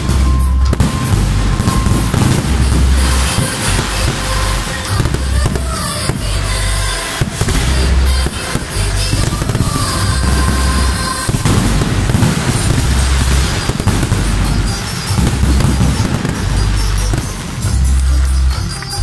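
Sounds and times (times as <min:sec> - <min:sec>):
fireworks bursting and crackling: 0:00.0 - 0:19.0
loud music with deep bass: 0:00.0 - 0:19.0.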